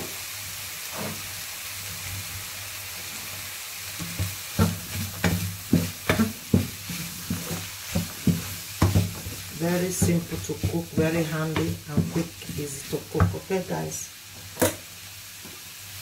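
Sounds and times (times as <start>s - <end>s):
food sizzling in a pan: 0.0s - 16.0s
wooden spatula knocking a pan: 4.0s - 13.7s.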